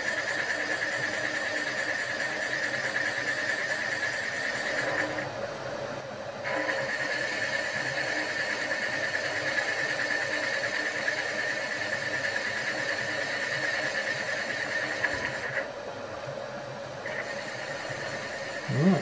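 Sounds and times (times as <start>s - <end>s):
machining whine: 17.0s - 19.0s
motor hum: 17.0s - 19.0s.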